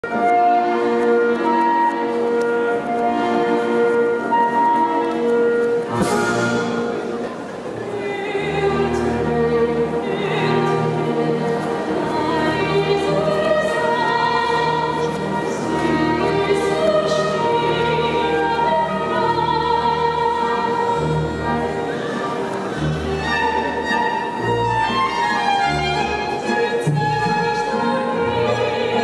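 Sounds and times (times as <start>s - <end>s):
sustained instrumental accompaniment: 0.0s - 29.0s
operatic soprano singing: 7.8s - 23.4s, 24.9s - 29.0s.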